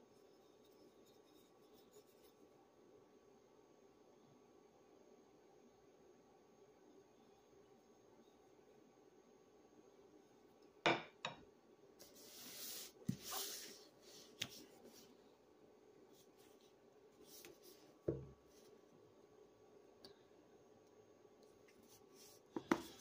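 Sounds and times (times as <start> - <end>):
book rubbing and rustling: 12.0 - 15.1.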